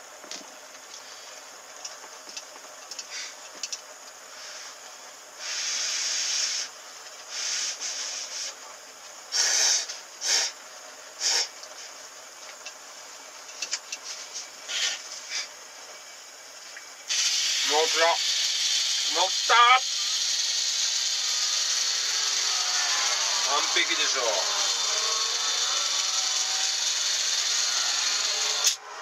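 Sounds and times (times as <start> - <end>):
faint hiss: 2.9 - 21.4.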